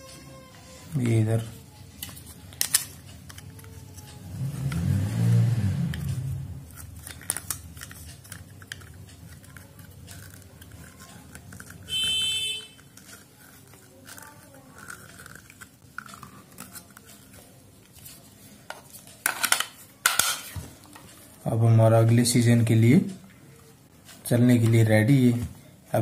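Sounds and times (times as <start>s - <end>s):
loud high-pitched beep: 11.9s - 12.6s.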